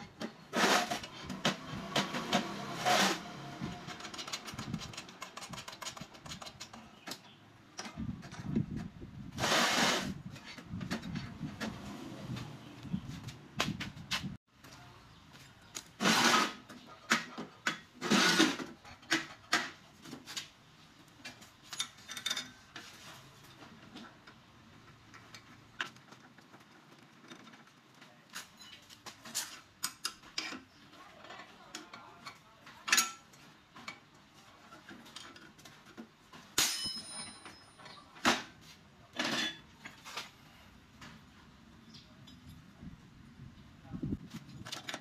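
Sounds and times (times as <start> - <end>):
steel parts clinking and knocking: 21.2 - 22.8, 31.7 - 34.1, 34.9 - 38.2.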